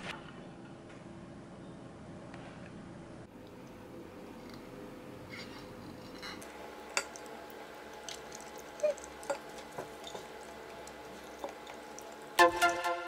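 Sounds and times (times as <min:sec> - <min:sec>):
faint room hum: 0:00.0 - 0:13.0
electronic beat music: 0:12.4 - 0:13.0.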